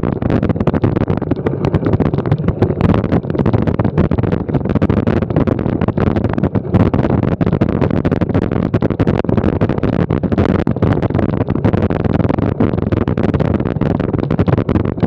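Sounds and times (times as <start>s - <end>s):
bicycle rattling over cobblestones: 0.0s - 7.3s.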